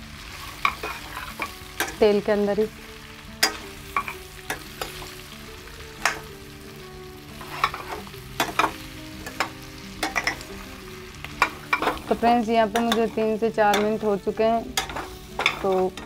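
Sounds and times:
vegetables sizzling in oil: 0.0 - 16.0
metal spoon scraping pan: 0.5 - 2.0, 3.4 - 5.1, 7.4 - 10.4, 14.7 - 16.0.

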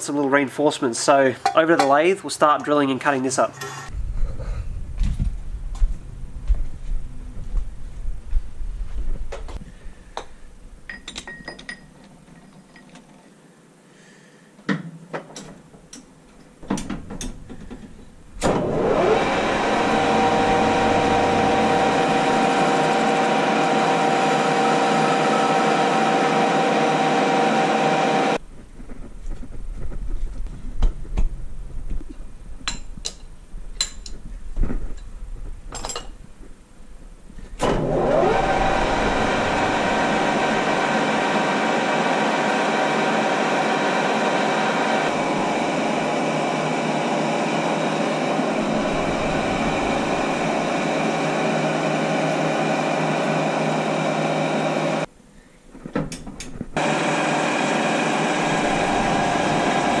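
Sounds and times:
lathe humming loudly: 18.4 - 28.4, 37.6 - 55.1, 56.8 - 60.0.

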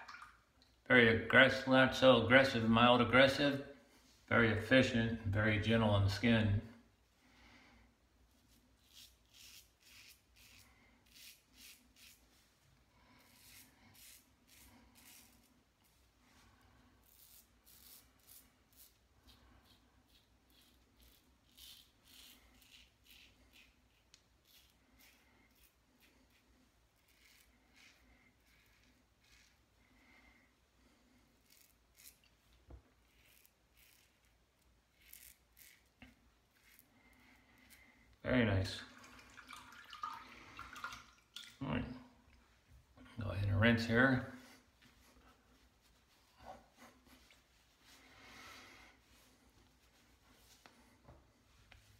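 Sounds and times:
razor scraping stubble: 8.4 - 12.4, 13.2 - 16.0, 17.0 - 29.7, 31.3 - 37.9.

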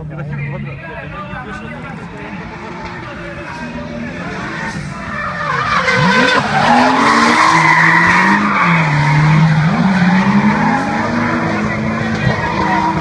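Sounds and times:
car engine revving: 1.6 - 13.0
tyre squeal: 3.4 - 11.6.

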